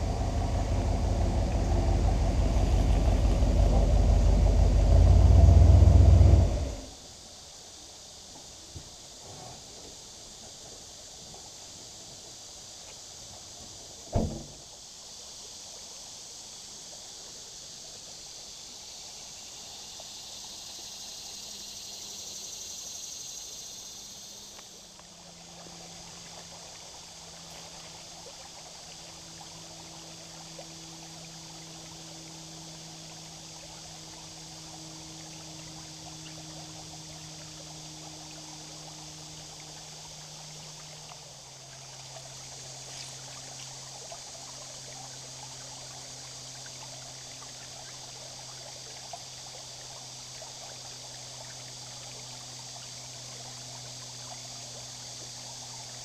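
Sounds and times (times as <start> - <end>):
faint low hum: 0.0 - 7.0
river water trickling over rock: 0.0 - 7.1, 23.9 - 56.0
sharp knock: 14.2 - 14.5.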